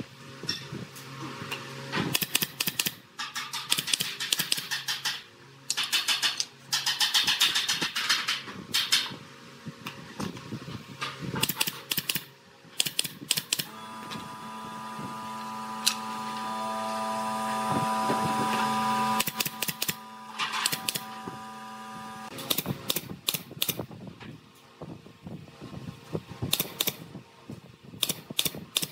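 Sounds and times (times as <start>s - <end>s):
motor humming: 12.8s - 23.8s.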